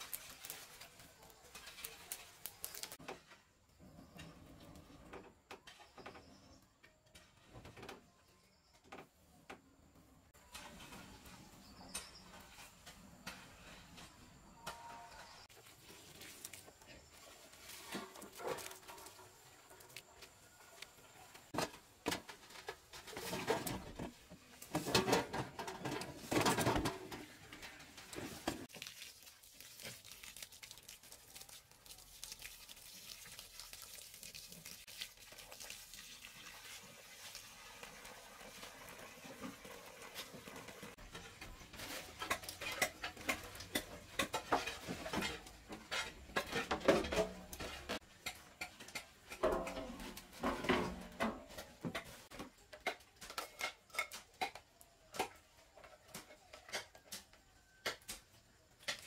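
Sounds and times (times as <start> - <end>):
water splashing: 28.7 - 39.5.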